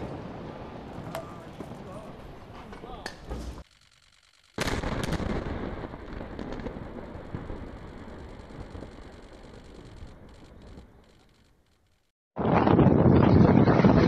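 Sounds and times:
explosive blast with cracks: 4.6 - 10.9.

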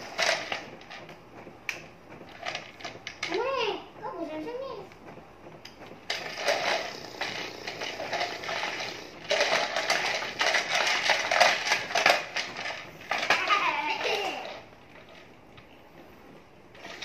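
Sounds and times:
stick vacuum cleaner running: 0.0 - 17.0.

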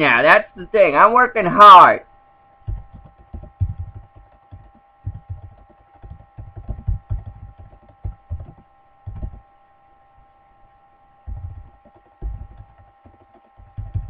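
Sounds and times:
faint electrical whine: 0.0 - 14.0
computer keyboard typing: 2.6 - 9.4, 11.2 - 14.0.

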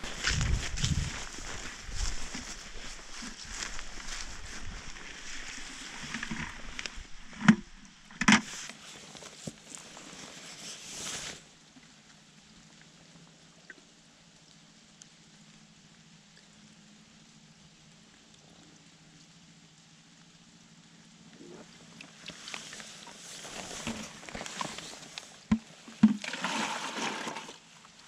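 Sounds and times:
water gurgling into bucket: 22.0 - 28.0.

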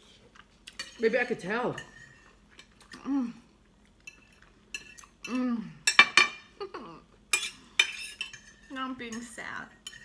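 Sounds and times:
person humming: 3.0 - 3.4, 5.3 - 5.8
cutlery clinking on plates: 4.0 - 6.4.

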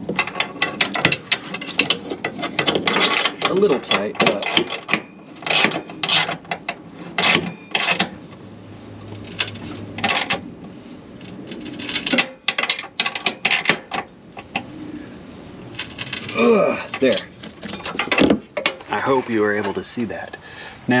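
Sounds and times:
metal scraping: 0.0 - 20.2.

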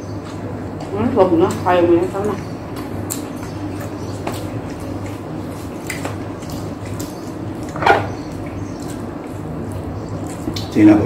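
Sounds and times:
wet chewing: 0.0 - 10.8
steady low hum: 0.0 - 11.0.

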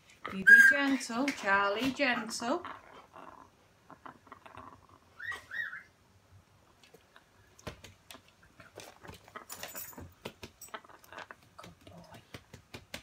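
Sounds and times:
parrot whistling: 0.4 - 1.0, 5.2 - 5.9
light clicks and jingling: 9.3 - 11.3.

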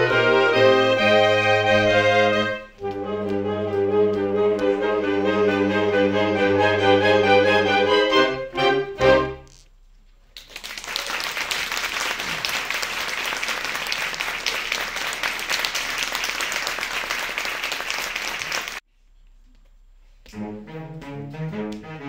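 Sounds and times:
audience applauding: 10.4 - 18.8.

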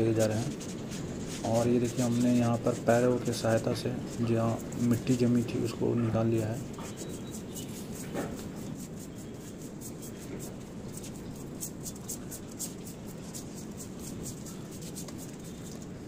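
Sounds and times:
broom sweeping concrete: 0.2 - 5.8, 6.4 - 15.8.

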